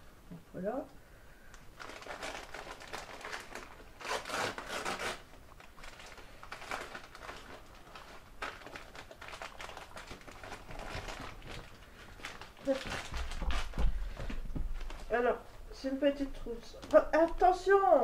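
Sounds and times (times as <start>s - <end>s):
packaging rustling and crinkling: 1.5s - 15.3s.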